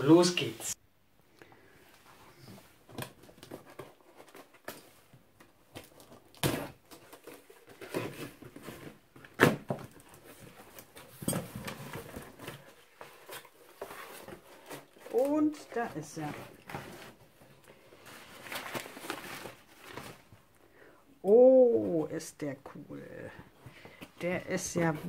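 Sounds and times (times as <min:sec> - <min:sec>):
cardboard flaps scraping and rustling: 0:05.7 - 0:17.4.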